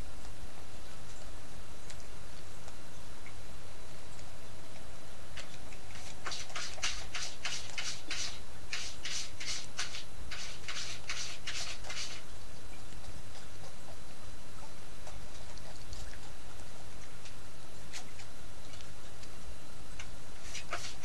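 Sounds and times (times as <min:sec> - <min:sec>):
kitten sucking wet clicks: 0:14.6 - 0:19.4.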